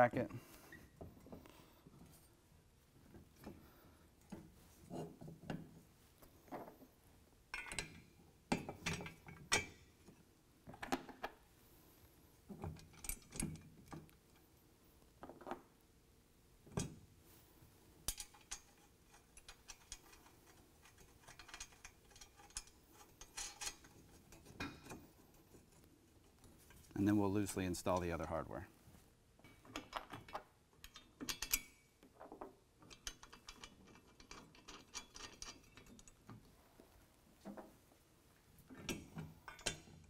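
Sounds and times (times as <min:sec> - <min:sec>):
metal hardware clicking and knocking: 0:07.5 - 0:09.8, 0:18.1 - 0:25.1, 0:29.4 - 0:36.4, 0:38.7 - 0:40.0.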